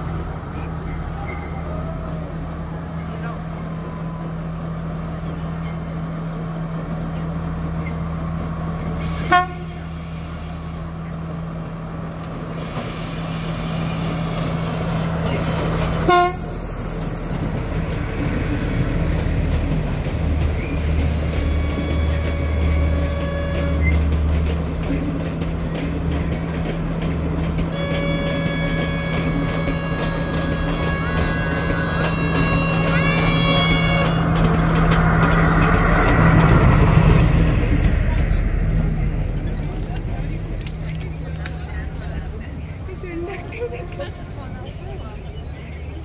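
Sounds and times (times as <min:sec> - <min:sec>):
diesel train engine drone: 0:00.0 - 0:46.0
wheels rumbling on rails: 0:00.0 - 0:46.0
train horn toots: 0:09.1 - 0:10.1, 0:16.0 - 0:16.6, 0:21.4 - 0:24.0, 0:27.7 - 0:34.3.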